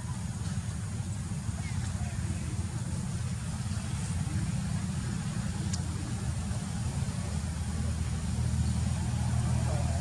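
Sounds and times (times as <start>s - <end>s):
faint tick: 5.6s - 5.9s.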